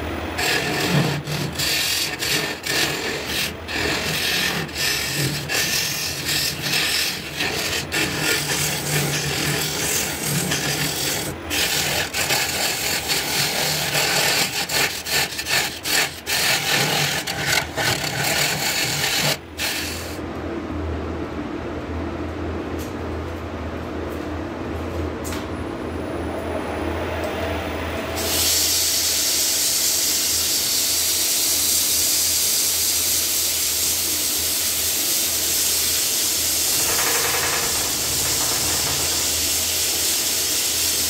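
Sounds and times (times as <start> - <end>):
lathe motor humming: 0.0 - 14.3, 36.4 - 40.4
turning tool scraping wood: 0.4 - 20.2, 35.3 - 41.0.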